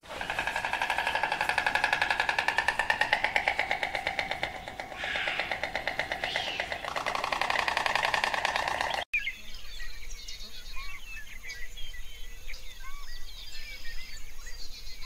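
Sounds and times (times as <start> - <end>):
animal pulsing trill: 0.0 - 9.1.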